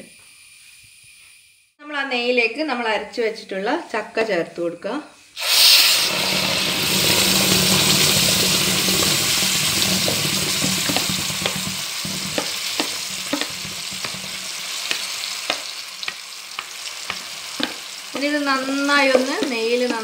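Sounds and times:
fruit pulp sizzling in hot fat: 5.4s - 20.0s
wooden spatula tapping and scraping: 8.9s - 20.0s.

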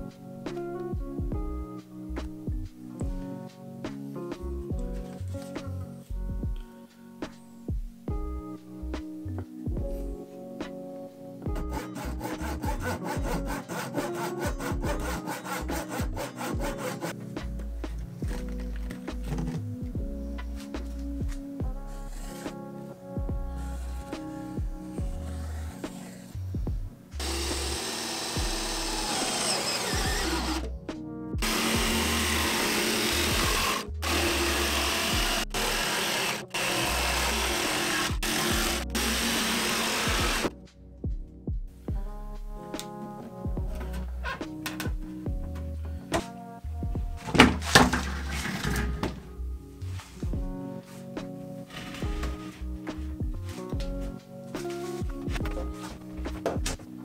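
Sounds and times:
background music: 0.0s - 57.0s
rasping strokes on wood: 11.6s - 18.0s, 25.1s - 26.4s, 27.2s - 30.7s, 31.4s - 40.5s
jigsaw cutting board: 11.6s - 19.6s, 27.2s - 30.7s, 31.4s - 40.5s, 47.2s - 49.2s, 51.7s - 53.0s.

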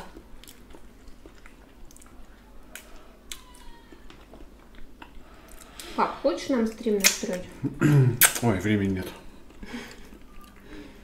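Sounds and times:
mouth clicks and smacks eating: 0.0s - 5.9s.

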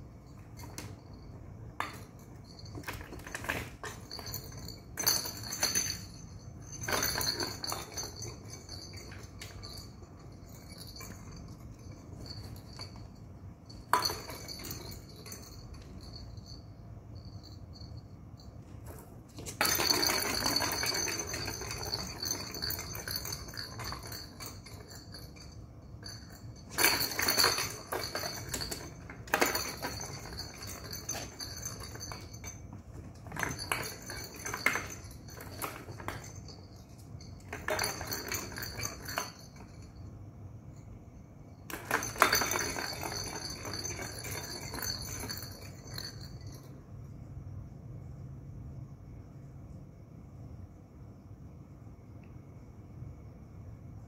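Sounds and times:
plastic balls rolling and clattering: 0.0s - 16.6s, 18.8s - 39.8s, 41.6s - 46.4s.

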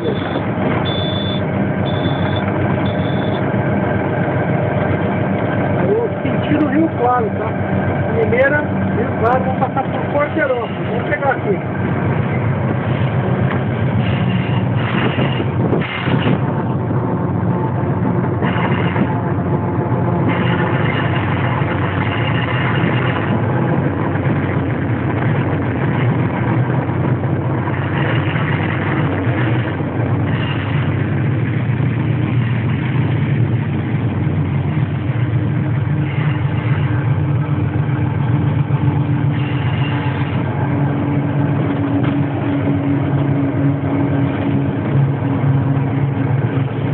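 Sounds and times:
higher steady tone: 0.0s - 12.6s
locomotive engine drone: 0.0s - 46.9s.

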